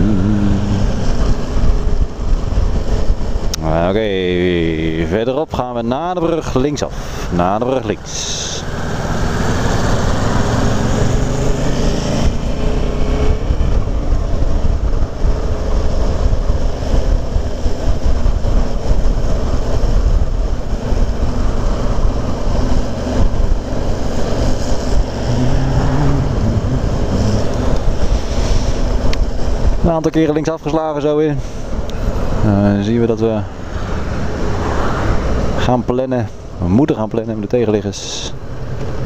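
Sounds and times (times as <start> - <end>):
wind on microphone: 0.0 - 3.6, 8.6 - 29.8.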